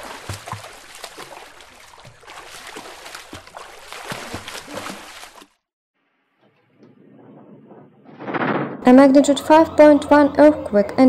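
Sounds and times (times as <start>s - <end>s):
pool water sloshing and splashing: 0.0s - 5.7s.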